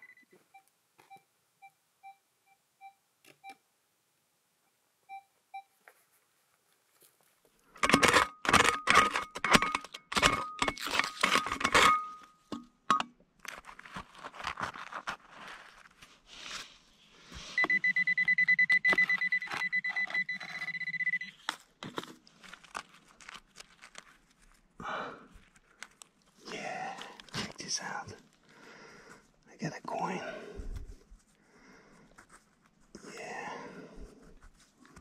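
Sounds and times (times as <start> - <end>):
metal detector pulsing beep: 17.6 - 21.4.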